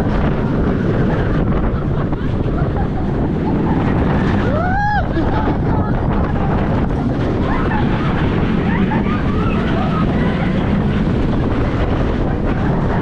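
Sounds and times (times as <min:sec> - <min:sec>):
roller coaster wheels rumbling: 0:00.0 - 0:13.0
wind rushing over microphone: 0:00.0 - 0:13.0.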